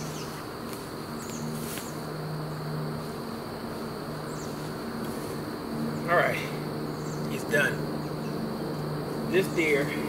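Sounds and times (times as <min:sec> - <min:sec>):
footsteps in dry leaves: 0:00.0 - 0:02.2
insect buzzing: 0:00.0 - 0:10.0.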